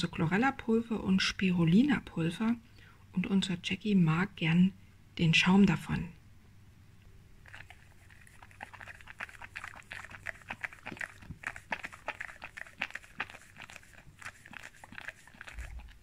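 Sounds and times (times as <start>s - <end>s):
dog licking: 7.4s - 16.0s.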